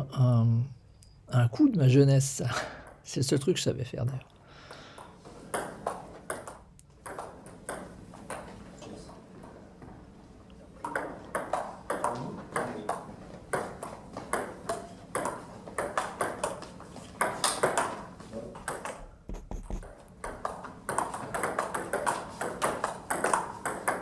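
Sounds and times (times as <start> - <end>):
table tennis ball clicking: 5.5 - 8.5, 10.8 - 18.0, 18.6 - 24.0.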